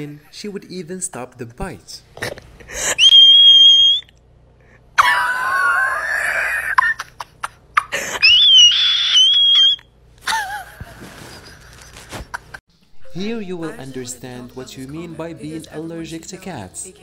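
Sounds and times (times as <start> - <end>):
woman screaming: 5.0 - 6.8, 8.1 - 9.8.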